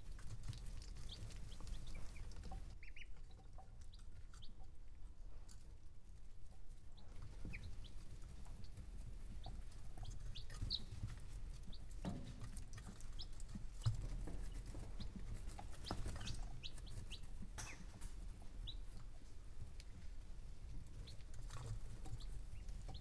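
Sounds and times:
chicks peeping: 0:00.0 - 0:23.0
scratchy taps of feet and beaks: 0:09.4 - 0:19.0, 0:21.0 - 0:23.0.

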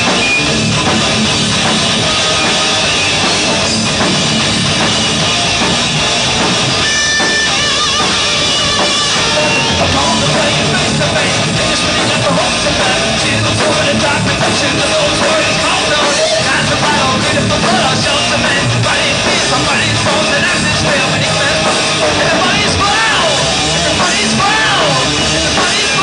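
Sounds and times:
drums: 0:00.0 - 0:26.0
electric guitars: 0:00.0 - 0:26.0
man singing and shouting: 0:06.9 - 0:26.0.

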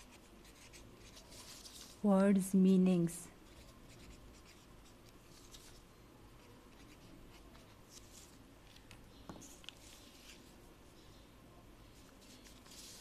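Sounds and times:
pencil scratching on paper: 0:00.0 - 0:01.9, 0:03.5 - 0:04.7, 0:06.4 - 0:08.1.

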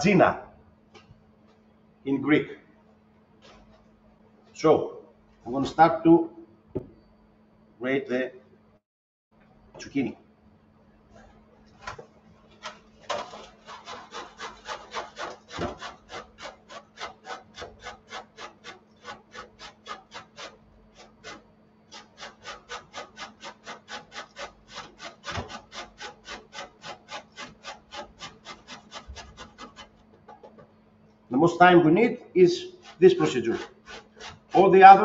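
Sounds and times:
zucchini grated on grater: 0:12.6 - 0:30.6, 0:32.4 - 0:35.0.

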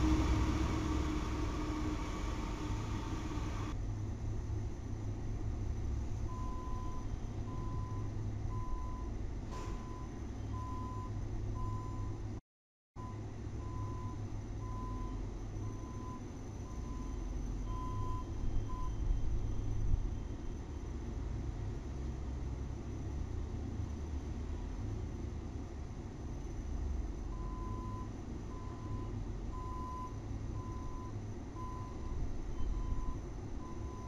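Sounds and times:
low engine rumble: 0:00.0 - 0:12.4, 0:13.0 - 0:34.0
reversing alarm beeps: 0:06.3 - 0:09.1, 0:09.7 - 0:12.2, 0:13.0 - 0:20.5, 0:27.3 - 0:34.0.

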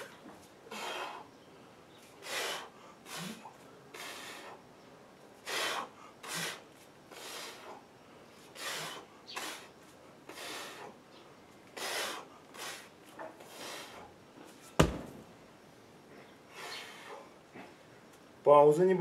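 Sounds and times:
man breathing forcefully: 0:00.7 - 0:01.3, 0:02.2 - 0:04.7, 0:05.4 - 0:07.8, 0:08.4 - 0:11.0, 0:11.7 - 0:14.2.

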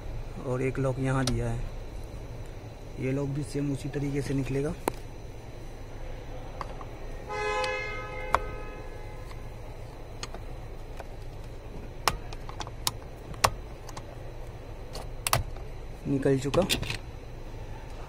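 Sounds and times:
two-tone car horn: 0:07.2 - 0:09.2.

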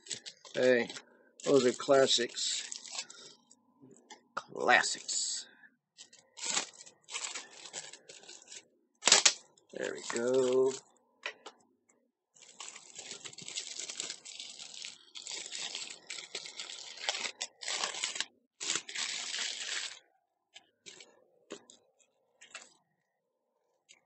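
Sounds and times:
plastic packaging tearing: 0:00.0 - 0:03.3, 0:06.0 - 0:10.8, 0:12.4 - 0:20.0.

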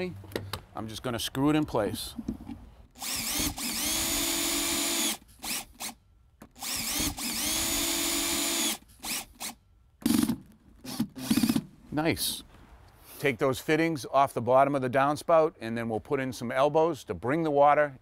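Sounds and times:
cordless drill driving screws: 0:03.0 - 0:11.7.

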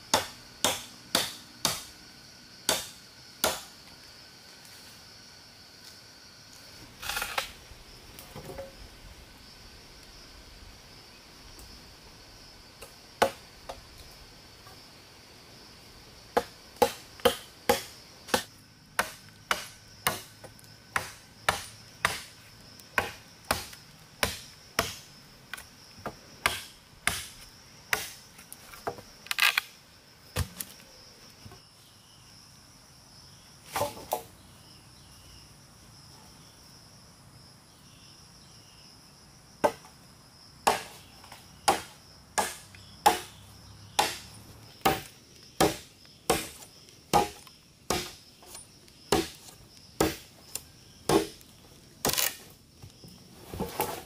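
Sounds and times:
insect buzz: 0:00.0 - 0:54.0
blade chopping into wood: 0:00.1 - 0:01.9, 0:02.7 - 0:03.7, 0:16.4 - 0:22.4, 0:23.0 - 0:25.1, 0:26.4 - 0:28.2, 0:40.6 - 0:41.0, 0:41.7 - 0:43.4, 0:44.0 - 0:50.3, 0:51.1 - 0:51.4.

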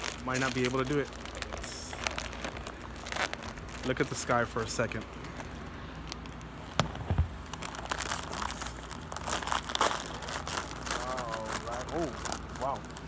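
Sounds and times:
foil bag crinkling: 0:00.0 - 0:13.0.

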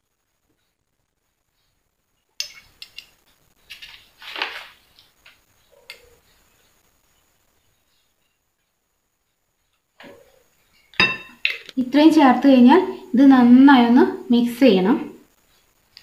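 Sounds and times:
spoon and bottle clinking: 0:02.4 - 0:03.1, 0:10.9 - 0:11.7.

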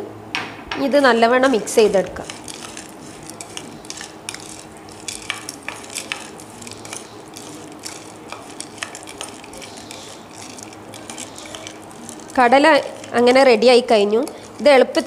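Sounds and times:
metal spoon clinking on plate: 0:02.2 - 0:13.3.

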